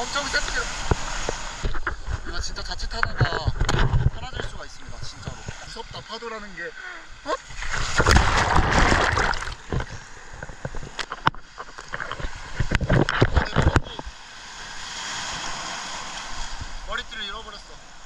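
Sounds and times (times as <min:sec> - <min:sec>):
hiss of surf: 0:00.0 - 0:02.6, 0:04.7 - 0:08.2, 0:13.8 - 0:18.0
rush of churning water: 0:00.0 - 0:18.0
water splashing against housing: 0:07.5 - 0:14.2.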